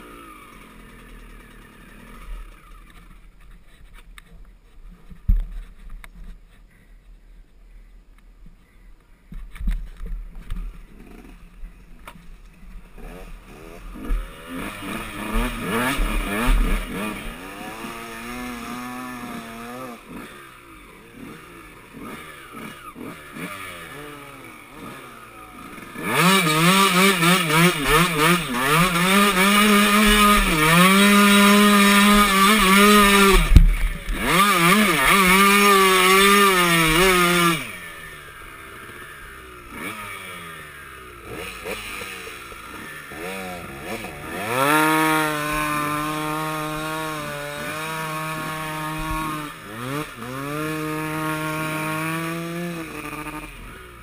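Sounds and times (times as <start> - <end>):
dirt bike engine revving: 0.0 - 3.4, 10.4 - 54.0.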